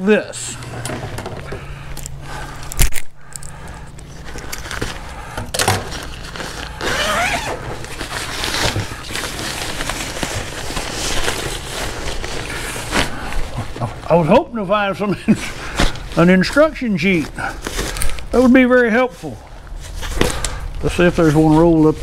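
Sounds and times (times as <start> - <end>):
steady low hum: 0.0 - 22.0
nylon bag rustling: 4.1 - 14.3, 15.4 - 22.0.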